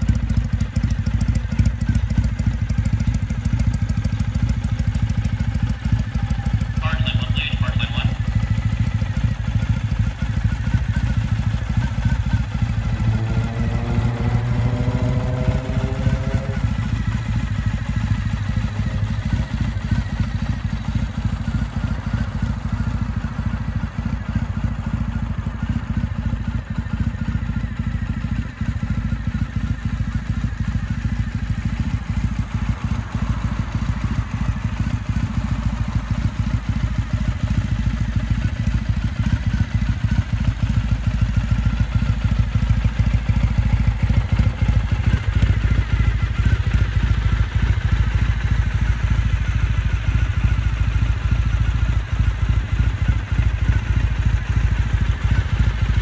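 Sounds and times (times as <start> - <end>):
motorcycle engine idling: 0.0 - 56.0
rising whine: 13.0 - 16.8.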